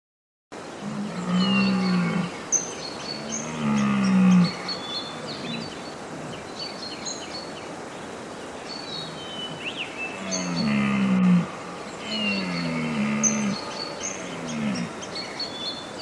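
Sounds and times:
birds chirping: 0:00.6 - 0:16.0
deer stag roaring: 0:00.8 - 0:02.4, 0:03.2 - 0:04.7, 0:10.2 - 0:15.0.

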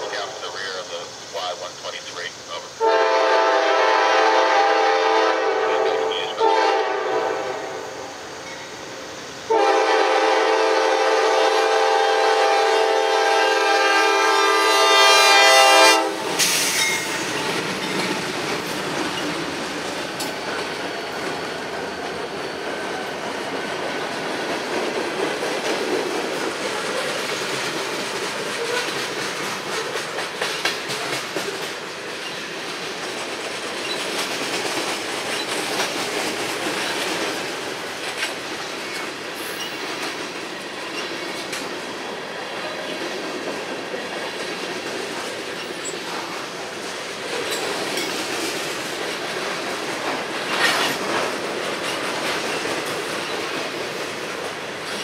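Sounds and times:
diesel locomotives rolling by: 0:00.0 - 0:55.0
train air horn blasts: 0:02.8 - 0:08.1, 0:09.5 - 0:17.3
train wheels clattering on rails: 0:08.1 - 0:55.0.

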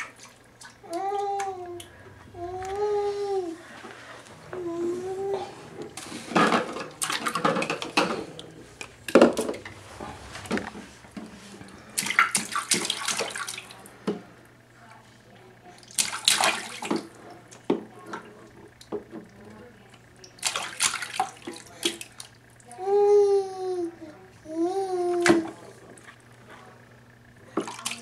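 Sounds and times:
baby splashing water: 0:00.0 - 0:03.6, 0:04.6 - 0:13.9, 0:15.8 - 0:17.6, 0:20.2 - 0:23.8, 0:27.6 - 0:28.0.

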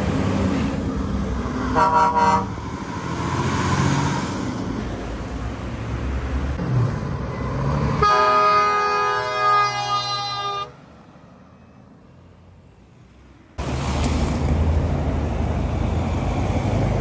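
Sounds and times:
truck diesel engines rumbling: 0:00.0 - 0:17.0
air horn blast: 0:01.7 - 0:02.6, 0:08.0 - 0:10.7.

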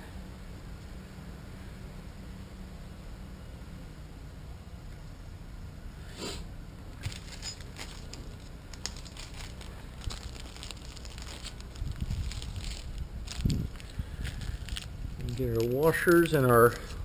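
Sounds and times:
plastic bag crinkling: 0:07.0 - 0:17.0.

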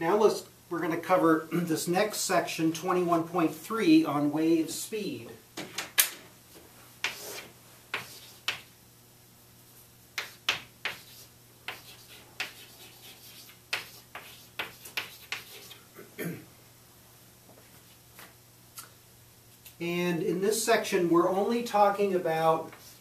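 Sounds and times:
chalk tapping and scratching: 0:06.5 - 0:08.7, 0:10.2 - 0:15.8, 0:22.7 - 0:23.0.

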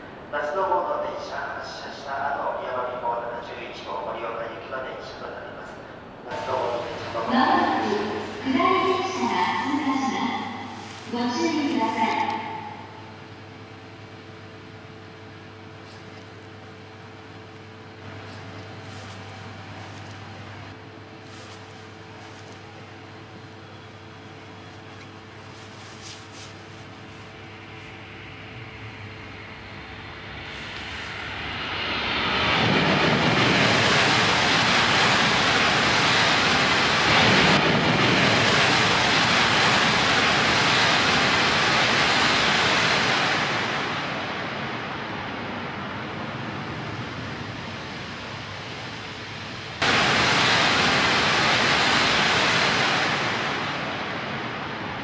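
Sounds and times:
train rushing past: 0:00.0 - 0:55.0.

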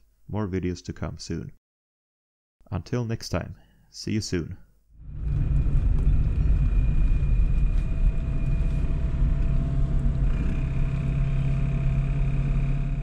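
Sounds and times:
car engine drone: 0:05.0 - 0:13.0
road rumble: 0:05.0 - 0:13.0.

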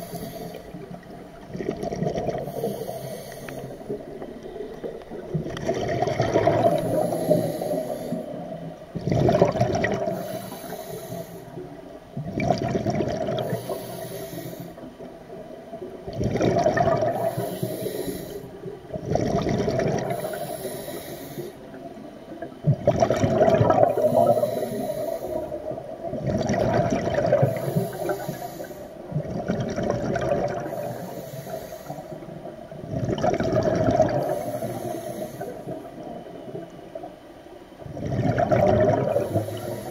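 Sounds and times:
regulator inhalation hiss: 0:00.0 - 0:01.0, 0:02.4 - 0:04.2, 0:06.6 - 0:08.5, 0:10.1 - 0:11.6, 0:13.4 - 0:14.9, 0:17.2 - 0:18.6, 0:20.1 - 0:21.7, 0:23.9 - 0:25.8, 0:27.4 - 0:29.0, 0:30.7 - 0:32.3, 0:34.2 - 0:35.9, 0:39.2 - 0:39.9
exhaled bubbles: 0:00.0 - 0:11.6, 0:12.2 - 0:21.5, 0:22.4 - 0:37.2, 0:37.8 - 0:39.9.

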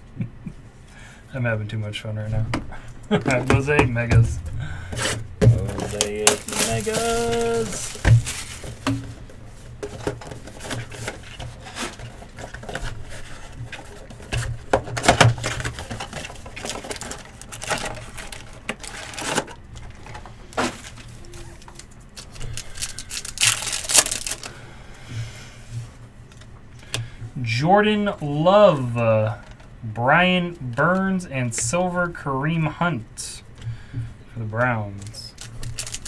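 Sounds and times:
wrappers and cardboard rustling: 0:03.0 - 0:24.6, 0:34.6 - 0:36.0.

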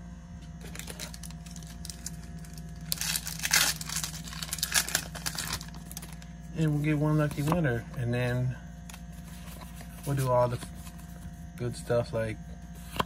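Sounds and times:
foil wrapper crinkling and tearing: 0:00.6 - 0:06.3.

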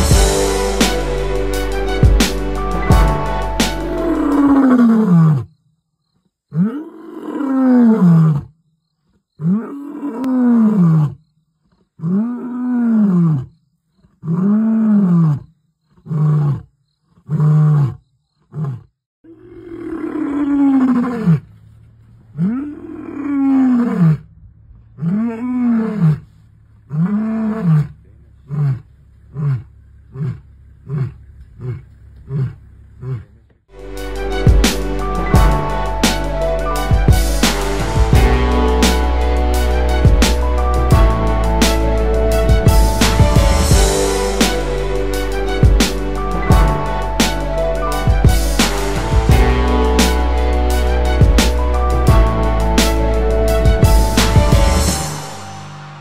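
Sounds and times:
lion roaring and grunting: 0:03.9 - 0:05.5, 0:06.5 - 0:08.5, 0:09.4 - 0:11.2, 0:12.0 - 0:13.5, 0:14.2 - 0:21.5, 0:22.3 - 0:33.4.

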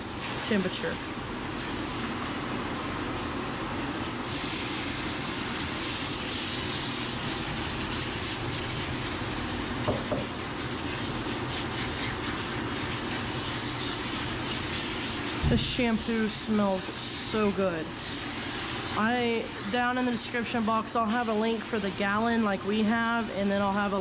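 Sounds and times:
water spraying from nozzle: 0:04.1 - 0:23.6.

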